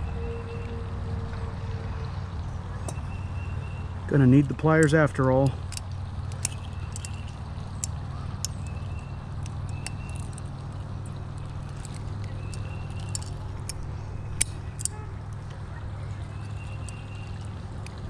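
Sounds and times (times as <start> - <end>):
steady low hum: 0.0 - 18.0
metallic clicks of pliers: 4.8 - 15.5.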